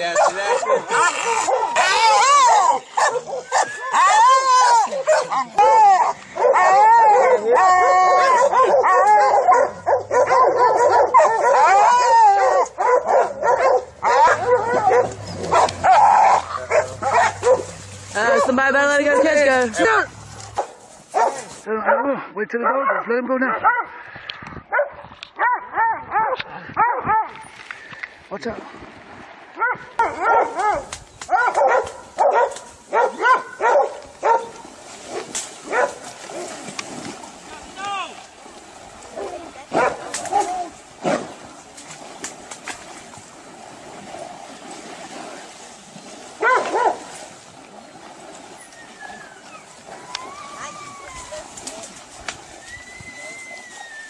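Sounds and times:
dogs barking and baying: 0.0s - 19.5s, 20.3s - 24.0s, 24.7s - 27.5s, 29.6s - 36.5s, 39.2s - 40.8s, 46.4s - 47.1s.

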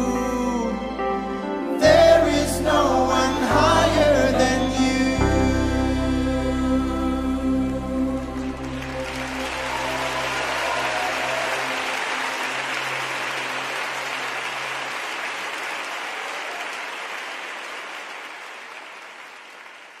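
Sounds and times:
band holding low note: 0.0s - 10.9s
audience applauding: 8.1s - 20.0s.

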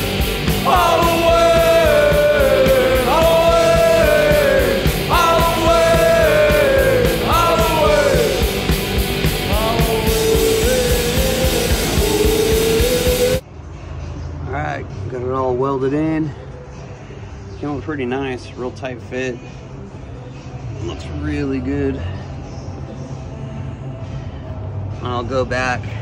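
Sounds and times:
rock music with singing: 0.0s - 13.8s.

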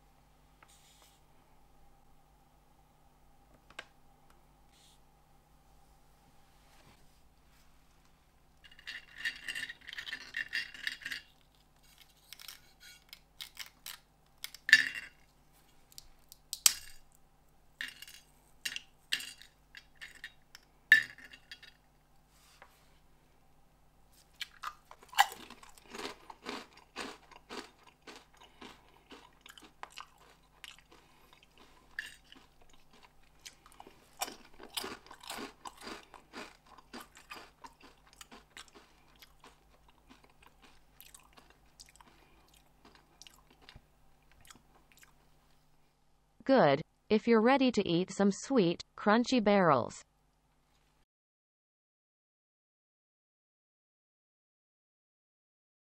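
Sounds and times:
chewing crunchy snacks: 8.7s - 14.7s, 24.2s - 45.3s
crisp snacks snapping: 13.1s - 14.7s, 24.3s - 45.2s.

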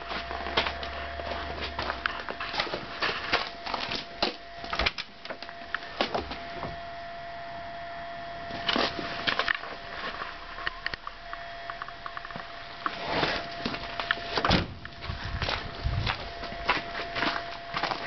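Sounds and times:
faint steady high tone: 3.3s - 18.0s
footsteps on frozen ground: 15.0s - 18.0s.

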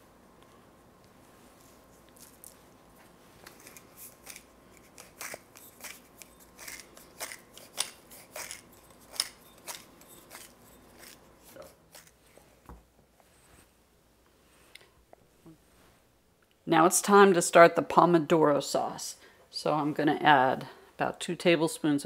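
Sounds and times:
pepper mill grinding: 3.4s - 12.2s.

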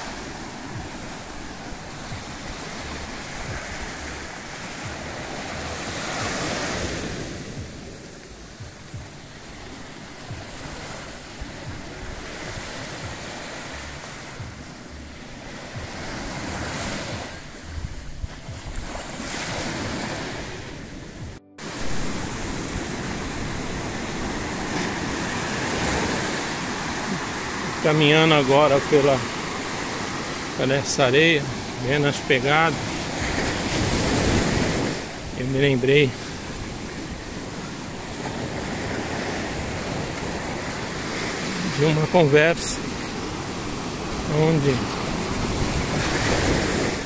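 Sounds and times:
surf breaking on beach: 0.0s - 14.5s, 15.3s - 47.0s
wind buffeting microphone: 17.4s - 19.9s, 45.0s - 47.0s.

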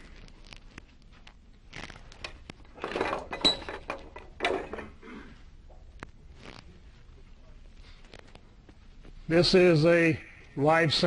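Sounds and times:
metal fittings clinking: 2.8s - 5.0s.

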